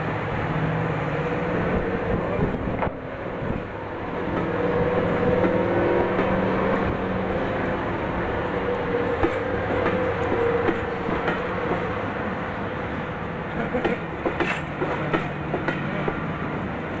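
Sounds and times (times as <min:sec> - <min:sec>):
diesel locomotive engine: 0:00.0 - 0:17.0
train wheels clicking over rail joints: 0:03.6 - 0:07.0, 0:08.6 - 0:12.0, 0:13.6 - 0:16.3.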